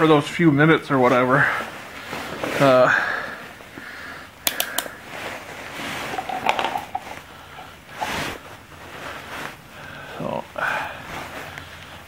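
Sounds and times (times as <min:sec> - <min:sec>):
rustle of gloved hands: 0:04.9 - 0:12.0
knocks of handling: 0:06.0 - 0:07.2.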